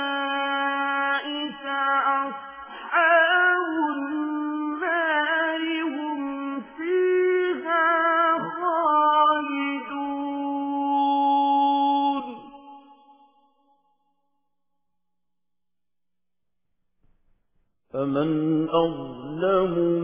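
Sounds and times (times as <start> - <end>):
person chanting melodic recitation: 18.0 - 20.0.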